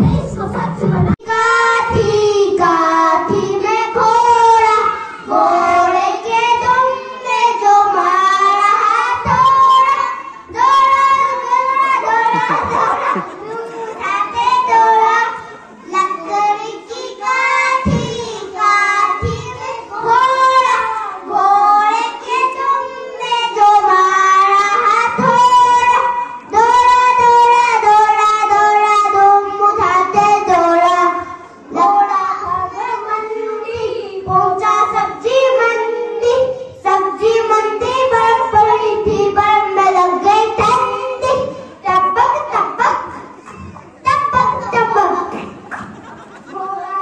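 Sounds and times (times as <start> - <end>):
young children singing: 0.0 - 47.0.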